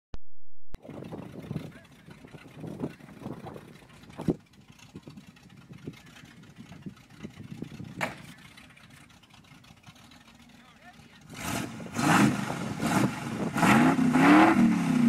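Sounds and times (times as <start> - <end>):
truck engine low rumble: 0.8 - 15.0.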